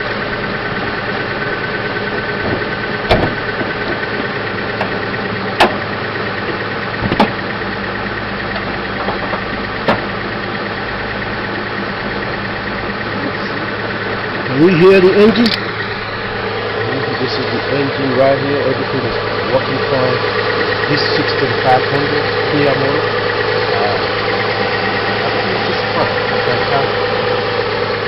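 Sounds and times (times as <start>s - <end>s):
car engine idling: 0.0s - 28.0s
sharp clicks: 15.3s - 15.8s.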